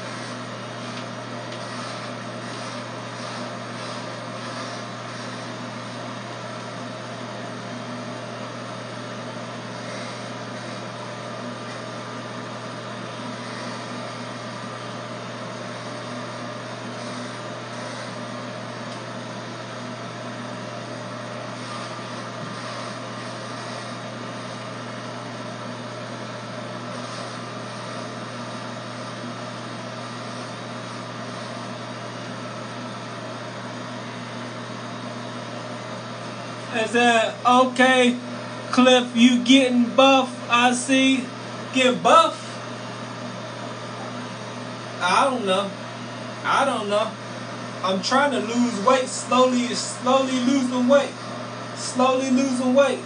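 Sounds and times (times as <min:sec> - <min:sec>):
electric hair clippers buzzing: 0:00.0 - 0:53.0.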